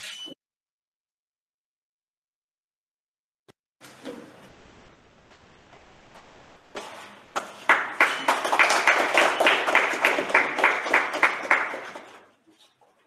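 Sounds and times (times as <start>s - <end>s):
people clapping: 7.3s - 12.4s.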